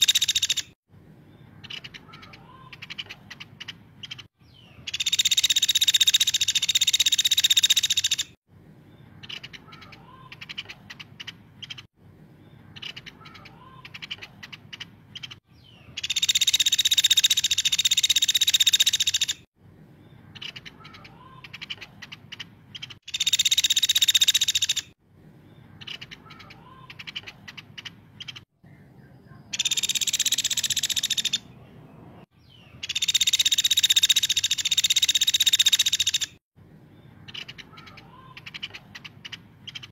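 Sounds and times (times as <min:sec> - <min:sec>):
woodpecker buzzing trills: 0:00.0 - 0:00.7, 0:32.8 - 0:36.3.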